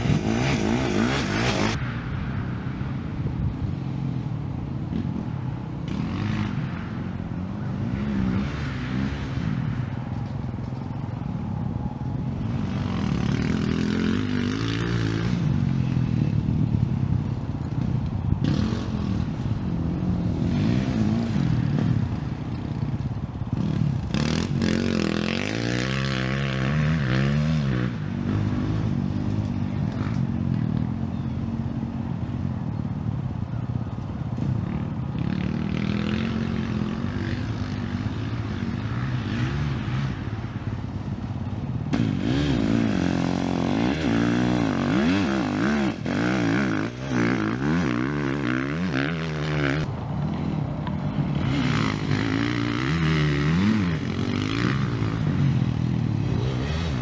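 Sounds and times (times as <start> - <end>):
dirt bike engine revving: 0.0 - 1.8, 12.4 - 16.7, 17.7 - 22.9, 23.5 - 31.9, 41.9 - 57.0
dirt bike engines running: 0.0 - 57.0.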